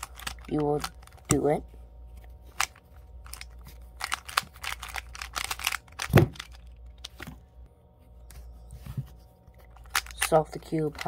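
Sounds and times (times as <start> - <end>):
speed cube clicking: 0.0 - 1.3, 2.6 - 7.1, 9.8 - 11.0.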